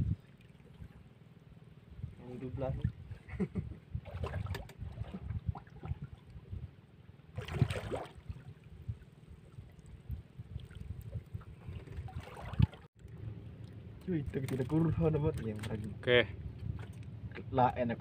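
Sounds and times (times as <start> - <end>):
water splashing against hull: 4.0 - 17.4.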